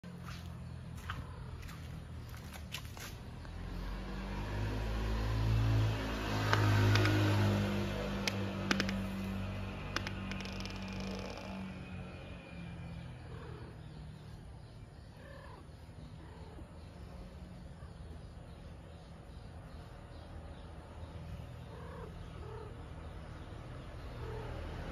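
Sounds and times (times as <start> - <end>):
vehicle engine passing by: 0.1 - 24.9
sharp clicks: 6.4 - 11.6.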